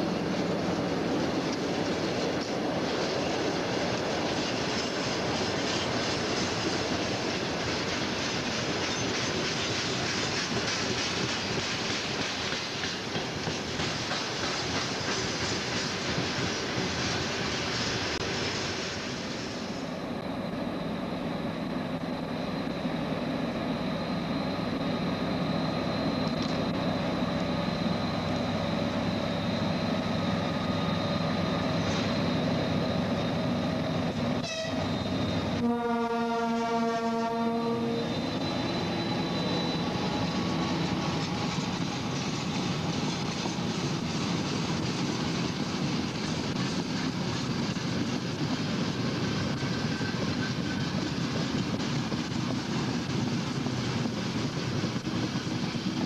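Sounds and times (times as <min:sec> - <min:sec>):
diesel locomotive engine drone: 0:00.0 - 0:56.0
train wheel noise: 0:00.0 - 0:56.0
locomotive horn blast: 0:34.4 - 0:34.9, 0:35.6 - 0:38.1.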